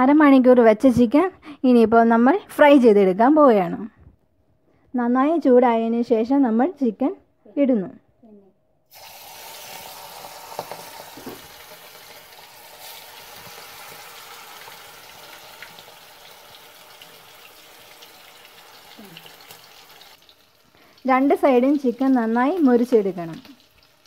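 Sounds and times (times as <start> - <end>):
chicken sizzling in hot oil: 8.9 - 24.0
oil popping and crackling: 8.9 - 24.0.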